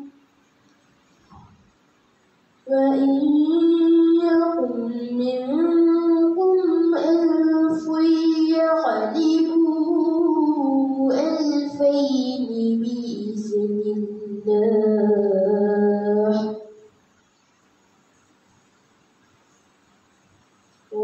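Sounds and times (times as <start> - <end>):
girl chanting: 2.7 - 16.6.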